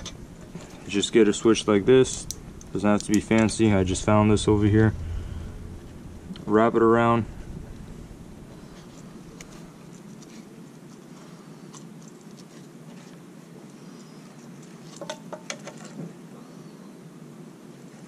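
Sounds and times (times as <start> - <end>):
wire twisting ticks and rustles: 0.0 - 5.0.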